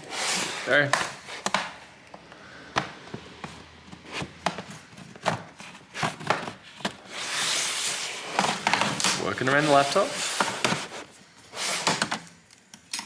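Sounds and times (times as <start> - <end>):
scraping rub: 7.0 - 12.0.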